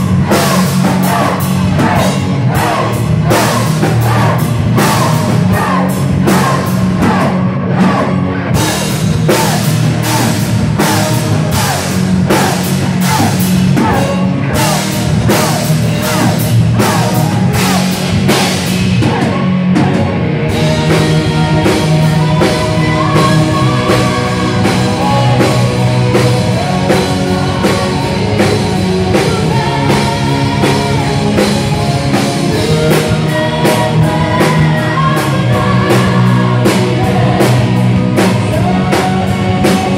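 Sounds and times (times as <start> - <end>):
drum kit: 0.0 - 39.9
electric guitar: 0.0 - 39.9
person singing: 0.0 - 39.9.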